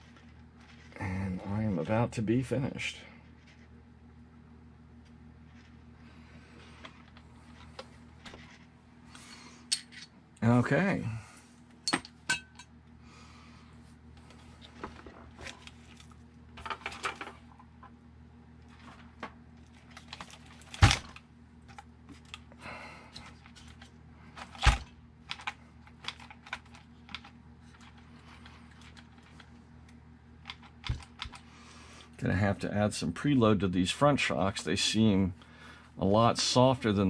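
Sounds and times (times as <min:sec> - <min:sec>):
clicks and rattles of toy car chassis: 0:23.3 - 0:28.0, 0:30.4 - 0:31.4.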